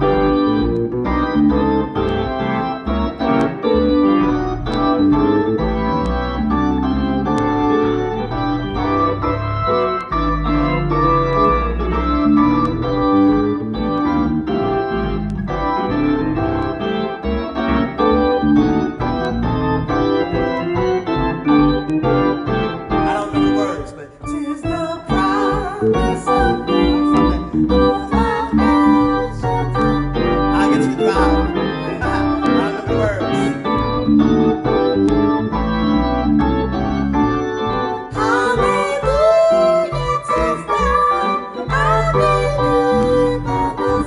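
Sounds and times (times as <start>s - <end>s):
electric keyboard organ chords: 0.0s - 44.0s
man singing: 23.1s - 25.4s.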